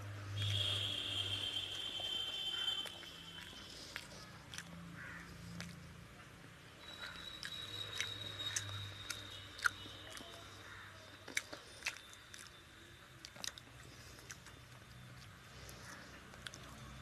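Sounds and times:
chewing smacks: 2.8 - 5.9, 7.0 - 12.6, 13.2 - 17.0.

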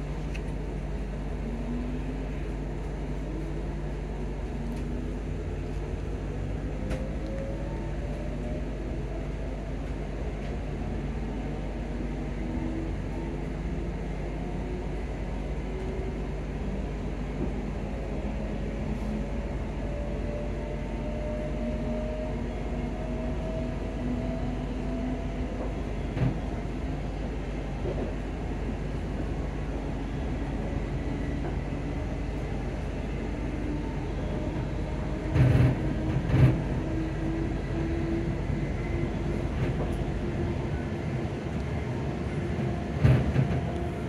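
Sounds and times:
train wheels rumbling on track: 0.0 - 44.0.

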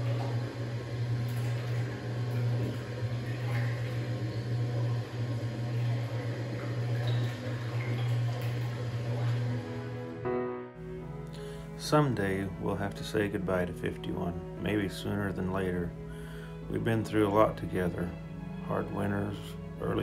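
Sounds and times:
milk churning: 0.0 - 10.2
motor humming: 0.0 - 10.4.

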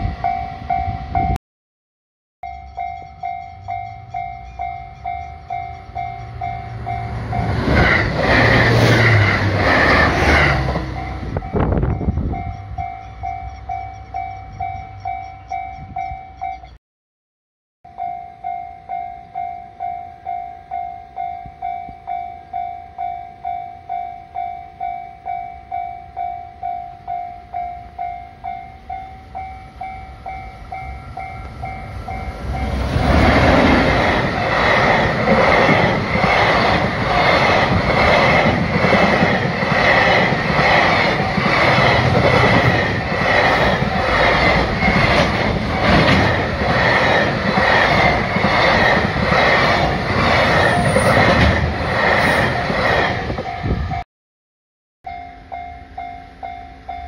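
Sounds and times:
level-crossing warning bell: 0.0 - 1.4, 2.4 - 16.8, 17.9 - 51.4, 52.4 - 54.0, 55.0 - 57.0
train wheels clacking over rail joints: 33.0 - 52.9.

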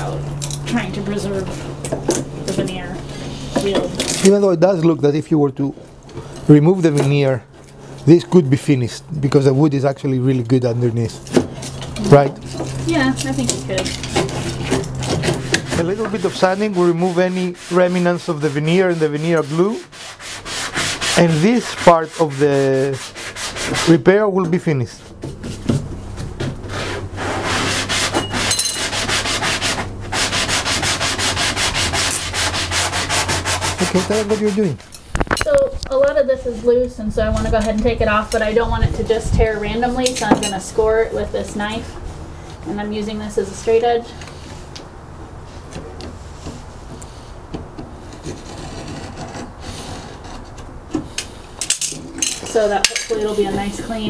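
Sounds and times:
sandpaper scratching on wood: 12.1 - 24.3, 26.7 - 34.8.

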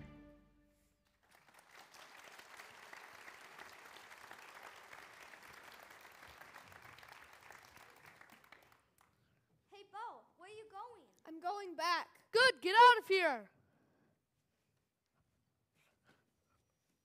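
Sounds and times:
audience applause: 1.2 - 9.1.

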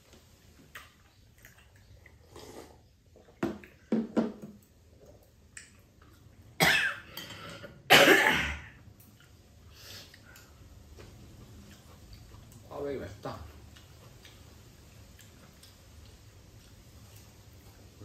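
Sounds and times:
woman coughing: 6.6 - 7.0, 7.9 - 8.8.

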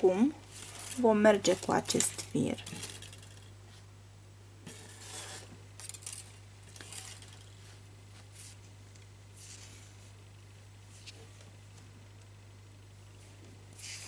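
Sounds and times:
steady low hum: 0.0 - 14.0
thread rustling and scraping: 0.4 - 3.9, 4.6 - 8.8, 9.4 - 10.2, 13.8 - 14.0.

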